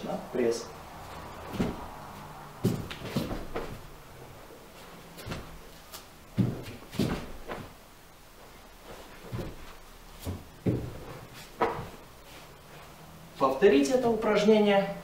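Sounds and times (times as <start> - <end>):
dull thuds on a mat: 1.4 - 2.0, 2.6 - 3.9, 5.2 - 5.7, 6.3 - 7.8, 9.1 - 12.0.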